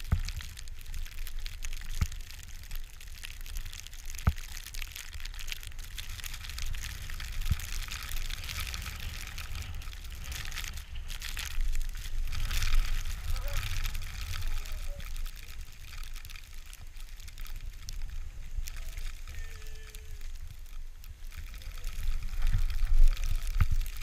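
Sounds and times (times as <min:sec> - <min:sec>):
wind rumbling on microphone: 0:00.0 - 0:24.0
skis hissing through powder snow: 0:08.3 - 0:15.9.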